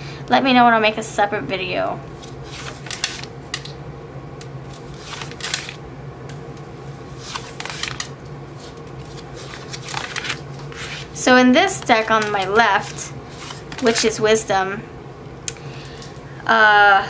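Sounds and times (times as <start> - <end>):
cards swishing and tapping: 2.2 - 3.8, 4.7 - 5.8, 7.2 - 14.2.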